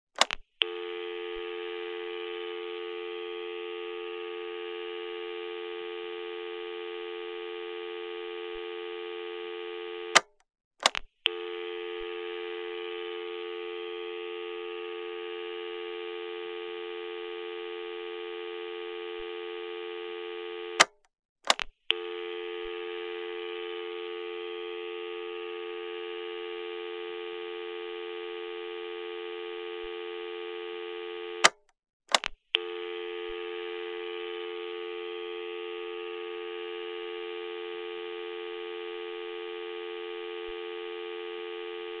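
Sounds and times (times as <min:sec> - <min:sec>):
sharp clicks: 0:00.2 - 0:00.4, 0:10.1 - 0:11.1, 0:20.8 - 0:21.7, 0:31.4 - 0:32.4
telephone dial tone hum: 0:00.2 - 0:42.0.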